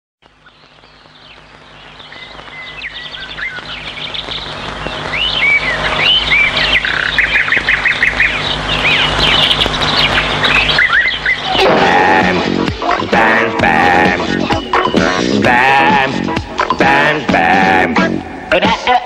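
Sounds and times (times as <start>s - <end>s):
small birds chirping and trilling: 0.2s - 17.3s
whistled bird calls: 0.4s - 11.6s.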